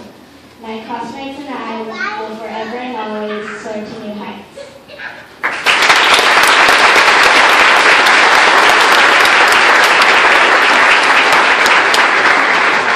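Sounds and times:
large crowd applauding: 5.4 - 12.9.

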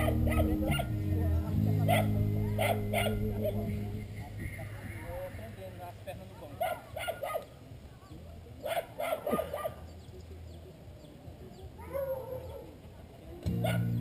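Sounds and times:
dog barking: 0.0 - 0.9, 1.8 - 3.3, 6.5 - 7.5, 8.6 - 9.8, 11.8 - 12.7, 13.6 - 14.0.

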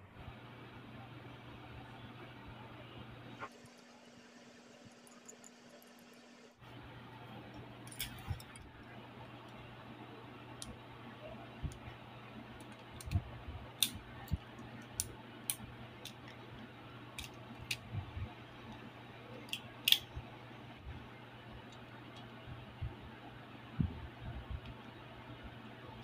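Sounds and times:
plastic parts clicking together: 12.6 - 13.2, 17.2 - 17.8, 19.4 - 20.1.

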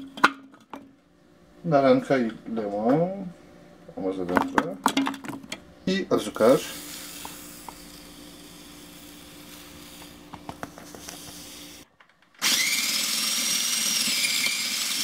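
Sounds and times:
food processor motor whining: 6.6 - 15.0.

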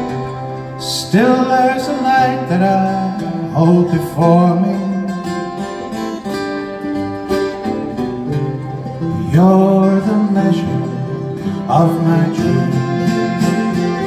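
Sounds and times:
fiddle melody: 0.0 - 14.0
folk band playing: 0.0 - 14.0
guitar strumming: 0.0 - 14.0.

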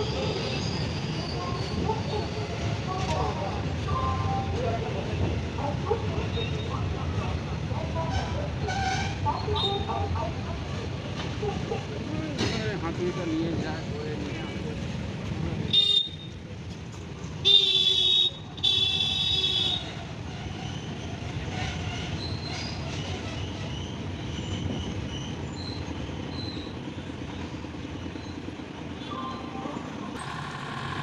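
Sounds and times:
train wagons rumbling over bridge: 0.0 - 31.0
locomotive horn: 17.4 - 19.9.

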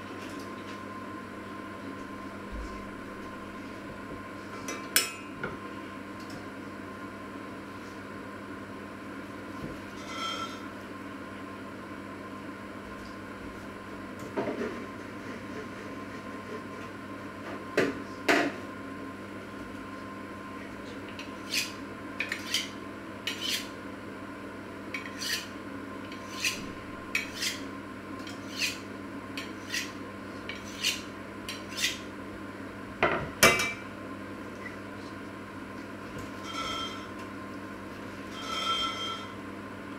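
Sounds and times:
knife scraping on sharpening steel: 10.0 - 10.6, 21.4 - 22.7, 23.3 - 23.7, 25.0 - 25.5, 26.1 - 27.6, 28.3 - 28.8, 29.4 - 32.0, 36.4 - 37.1, 38.3 - 39.4.

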